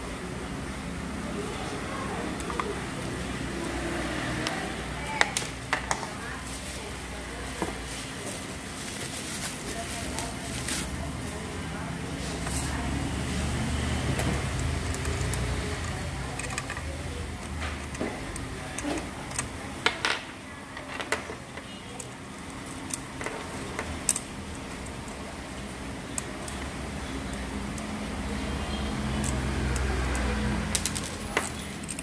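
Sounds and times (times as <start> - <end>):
indistinct voices: 0.0 - 32.0
cables clicking and rattling on metal: 14.1 - 20.0, 28.9 - 32.0.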